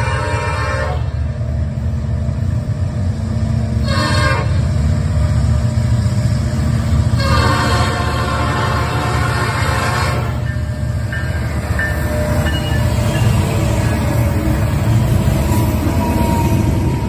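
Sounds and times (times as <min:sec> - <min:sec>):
locomotive air horn blasts: 0:00.0 - 0:01.2, 0:03.8 - 0:04.7, 0:07.2 - 0:10.5
freight train rumble: 0:00.0 - 0:17.0.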